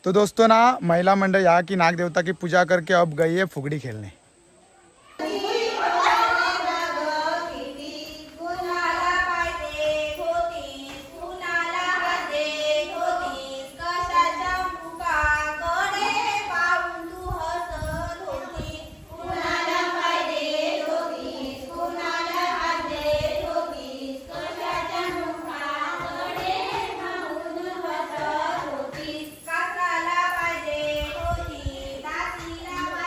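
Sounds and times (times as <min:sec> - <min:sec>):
women and girls singing: 0:05.2 - 0:33.0.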